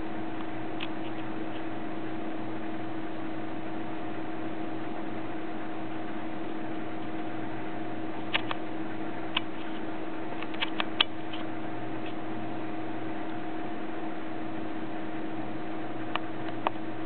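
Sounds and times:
steady hum with hiss: 0.0 - 17.0
sharp clicks: 8.3 - 8.6, 10.4 - 12.2.

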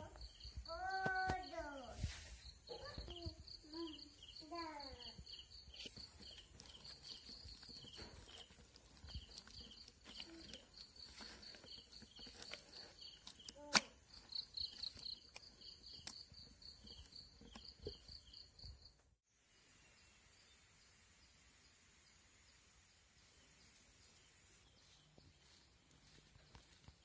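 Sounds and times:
cricket chirps: 0.0 - 1.6, 2.2 - 19.0
hand kneading wet dough: 5.8 - 13.5.

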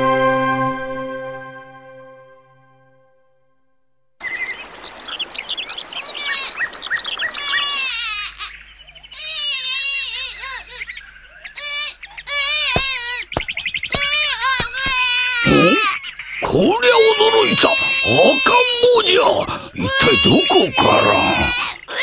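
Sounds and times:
birds chirping: 4.2 - 22.0
baby crying: 7.4 - 8.5, 9.1 - 10.9, 11.6 - 13.3, 13.9 - 16.0, 16.6 - 22.0.

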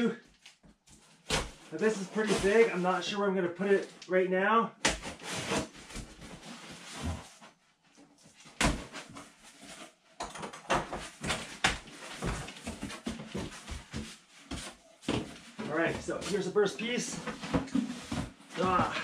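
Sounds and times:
cardboard ripping and rustling: 1.1 - 2.8.

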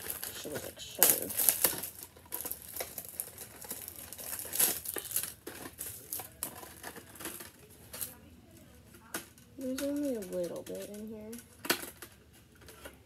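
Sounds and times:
wrapping crinkling and tearing: 0.0 - 13.0.

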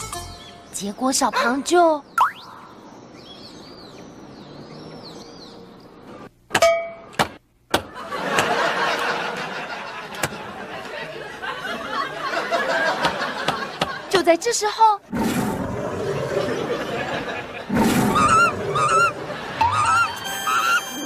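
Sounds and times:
group of people laughing: 7.9 - 14.1, 16.2 - 20.8
short high chirping tones: 19.6 - 21.0.

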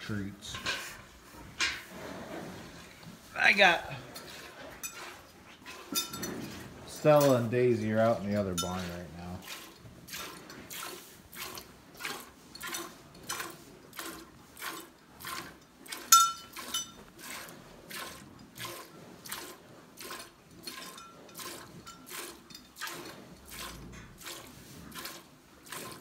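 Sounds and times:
milk squirting into metal pail: 4.2 - 26.0
metallic clink from pail: 5.9 - 7.5, 8.4 - 9.1, 16.1 - 17.0.

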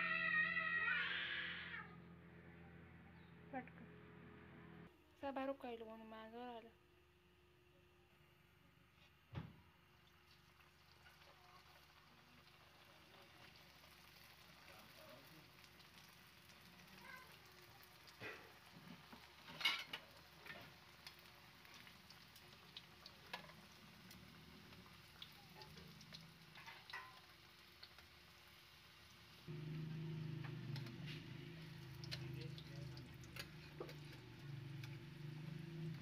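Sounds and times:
food frying in hot oil: 9.3 - 36.0
oil popping: 29.5 - 36.0.

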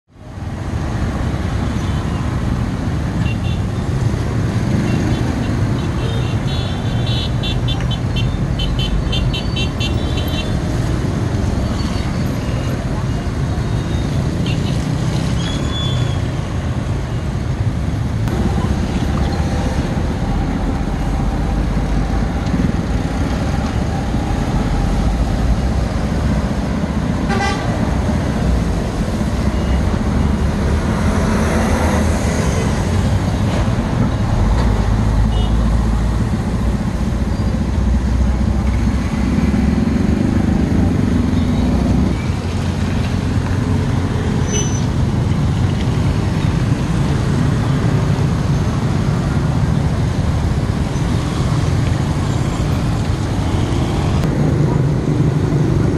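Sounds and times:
traffic rumble: 0.1 - 55.9
horn toots: 27.3 - 27.8.

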